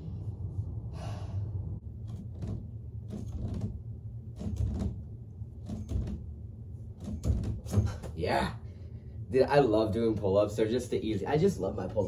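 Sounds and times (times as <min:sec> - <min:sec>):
low steady hum: 0:00.0 - 0:12.0
soft knocks and thumps: 0:04.4 - 0:08.2.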